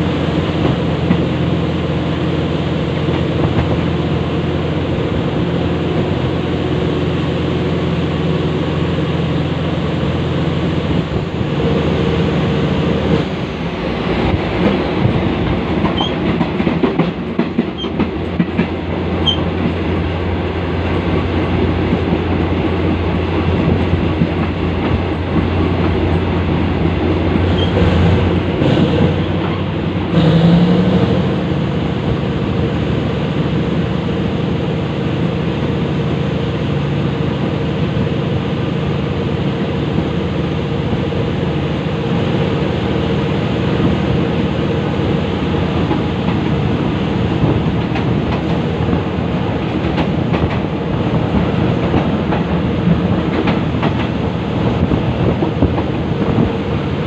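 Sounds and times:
train wheels clattering on rails: 0.4s - 1.6s, 3.0s - 4.0s, 14.0s - 32.2s, 43.6s - 57.0s.

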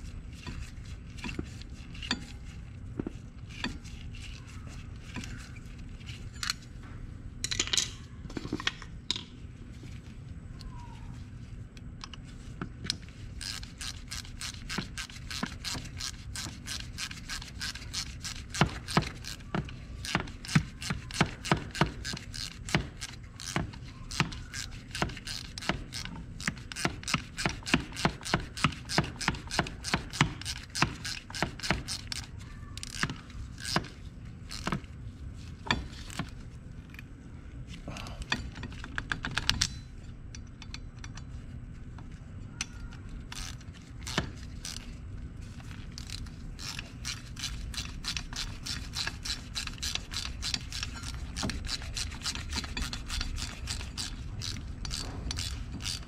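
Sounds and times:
low steady hum: 0.0s - 56.0s
metal parts scraping and knocking: 0.3s - 6.8s, 7.4s - 9.4s, 12.8s - 37.1s, 38.2s - 56.0s
hand ratchet clicking: 12.9s - 34.9s, 42.6s - 45.0s, 45.6s - 56.0s.

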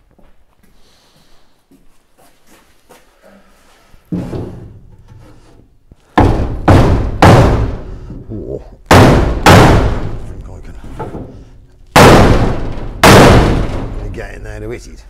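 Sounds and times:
hammer striking metal through wood: 6.2s - 8.1s, 8.9s - 10.2s, 11.0s - 14.0s.

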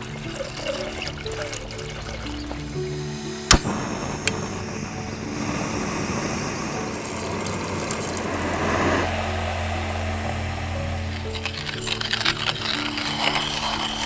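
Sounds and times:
burner hissing: 0.0s - 14.0s.

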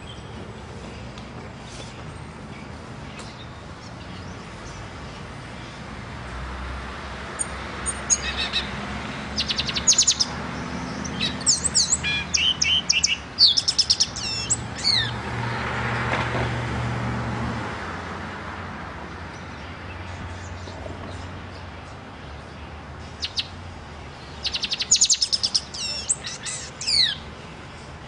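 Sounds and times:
vehicle passing by: 0.0s - 28.0s
songbird singing trills: 7.4s - 15.3s, 19.3s - 28.0s.

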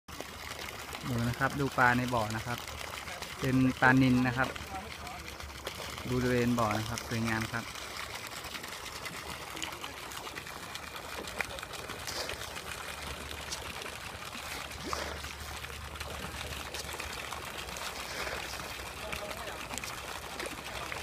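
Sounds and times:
fish splashing: 0.1s - 21.0s
water trickling: 0.1s - 21.0s.

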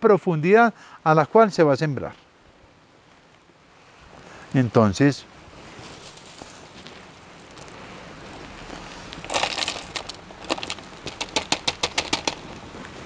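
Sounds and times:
potting mix rustling: 8.3s - 13.0s
bark and gravel crackling clicks: 8.4s - 12.6s.

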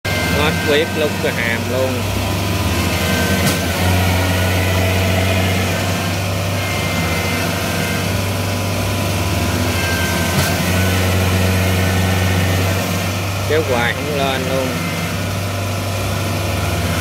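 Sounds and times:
harvester engine droning: 0.0s - 17.0s.

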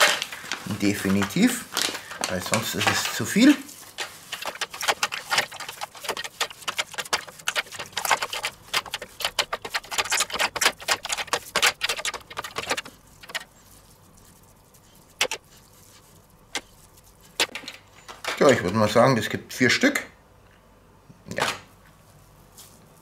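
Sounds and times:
hands kneading ground meat: 0.0s - 17.5s.

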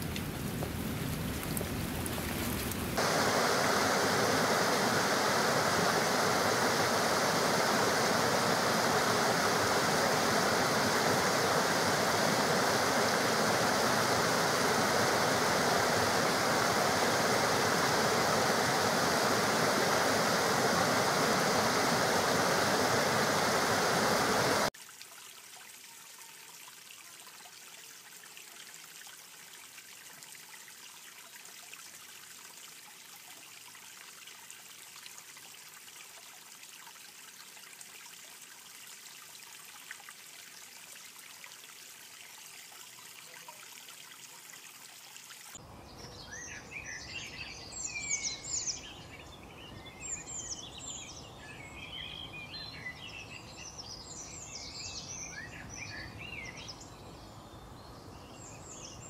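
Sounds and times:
thin stream trickling: 0.0s - 59.0s
water rushing over rocks: 2.2s - 24.7s.

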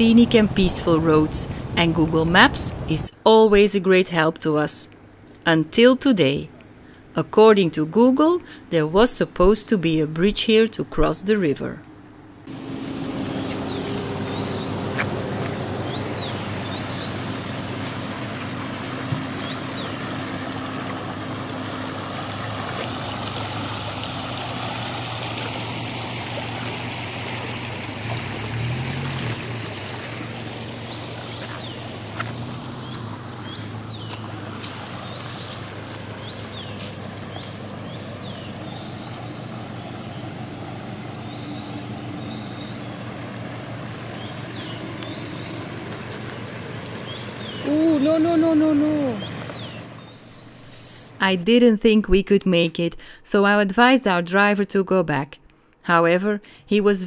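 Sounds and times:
vehicle engine idling: 12.2s - 51.2s
stream trickling over stones: 12.5s - 50.8s.

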